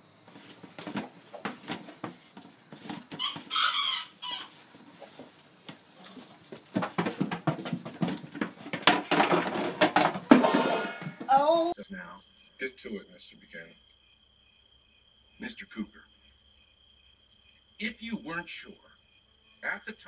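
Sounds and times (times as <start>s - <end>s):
rapid clattering and knocking: 5.2s - 11.3s.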